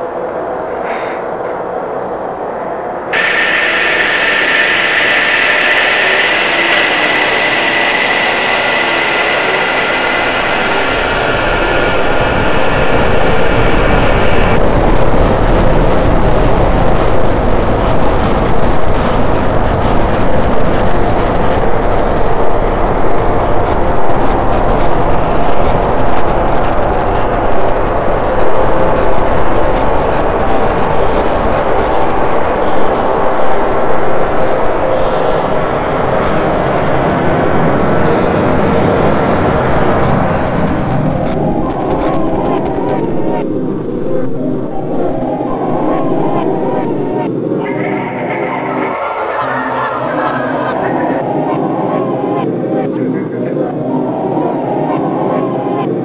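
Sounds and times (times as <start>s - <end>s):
loud dense rumbling: 2.0s - 55.7s
shrill high screeching: 3.1s - 14.6s.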